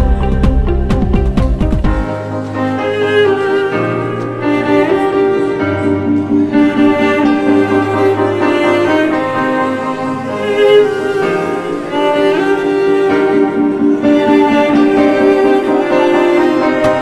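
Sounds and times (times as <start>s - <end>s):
dance accompaniment music: 0.0s - 2.6s.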